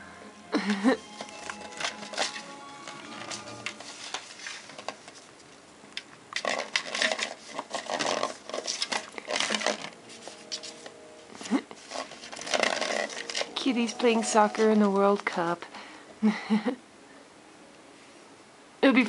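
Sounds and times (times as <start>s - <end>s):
candy wrappers crinkling: 0.6s - 15.6s
candy rattling against bowl: 6.4s - 10.0s, 11.8s - 14.7s.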